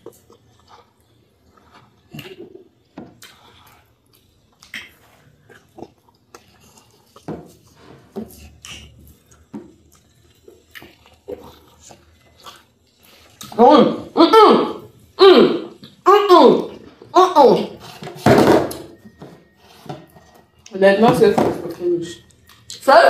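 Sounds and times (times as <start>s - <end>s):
chewing and swallowing: 0.0s - 13.6s, 22.2s - 22.8s.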